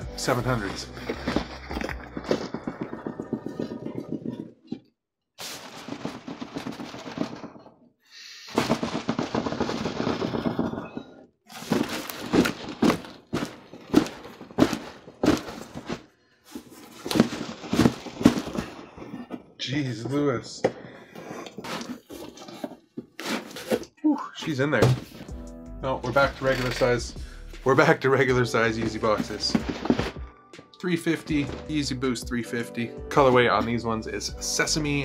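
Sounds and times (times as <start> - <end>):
packing tape tearing off cardboard: 0.3 - 4.1, 5.4 - 7.4, 11.5 - 18.8, 21.4 - 23.9, 29.2 - 30.2
cardboard box knocks and thumps: 11.5 - 16.0, 16.6 - 18.7, 29.2 - 30.2.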